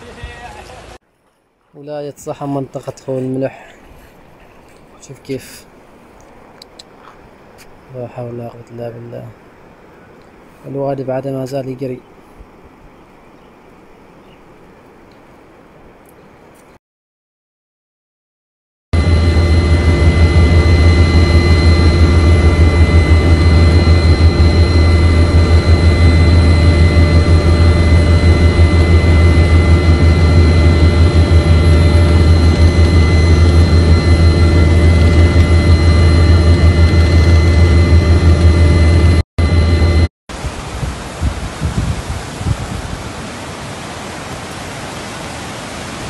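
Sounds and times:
high engine whine: 0:19.0 - 0:41.0
aircraft engine drone: 0:19.0 - 0:46.0.

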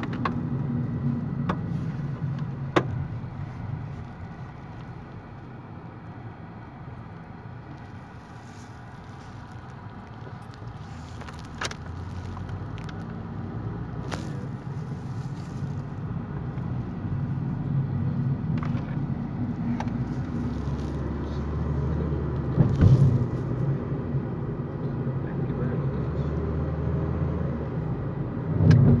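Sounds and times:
car engine and road noise: 0:00.0 - 0:29.0.

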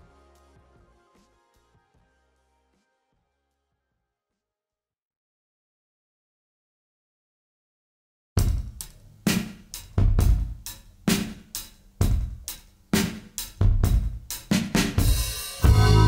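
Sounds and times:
drum beat music: 0:08.4 - 0:16.0.

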